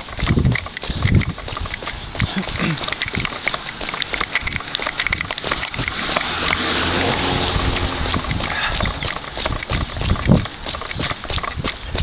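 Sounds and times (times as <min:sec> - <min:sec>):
footsteps on wet asphalt: 0:00.0 - 0:12.0
vehicle passing on wet road: 0:05.4 - 0:10.8.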